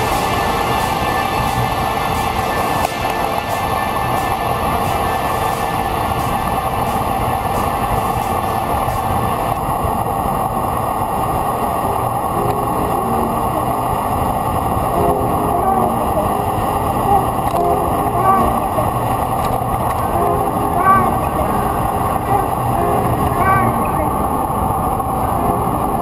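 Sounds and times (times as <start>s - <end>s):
wind and road noise: 6.4s - 26.0s.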